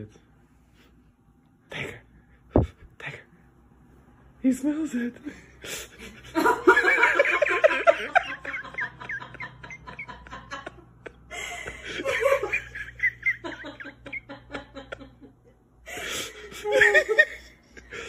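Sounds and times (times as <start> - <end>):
person laughing: 5.7 - 15.4, 16.3 - 18.0.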